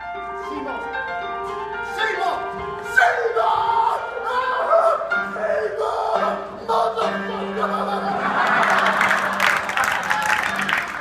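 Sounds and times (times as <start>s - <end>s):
audience applause: 8.3s - 11.0s.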